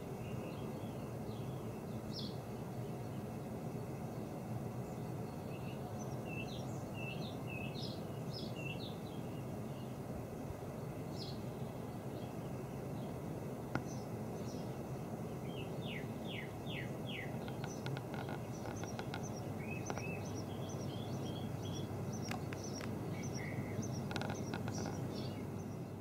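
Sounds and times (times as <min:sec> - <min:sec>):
low background rumble: 0:09.0 - 0:26.0
songbirds chirping and singing: 0:13.8 - 0:26.0.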